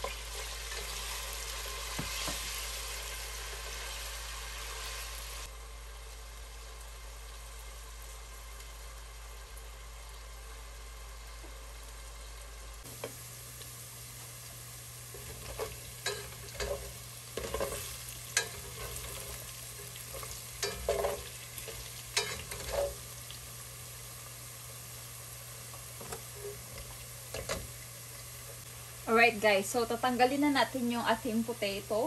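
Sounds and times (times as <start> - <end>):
potatoes sizzling in oil: 0.0 - 32.0
spoon knocking and scraping pot: 15.2 - 23.0.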